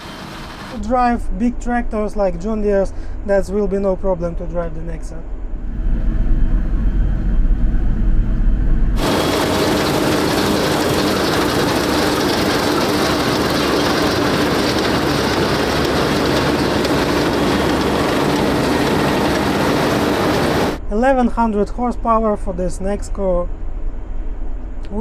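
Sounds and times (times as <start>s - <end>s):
combine harvester running: 0.0s - 0.8s, 9.0s - 20.8s
constant hum: 0.0s - 25.0s.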